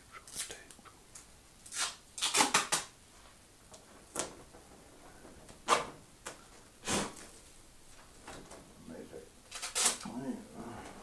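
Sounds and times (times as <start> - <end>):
stiff paper and tape rustling: 1.6 - 2.9, 9.5 - 10.2.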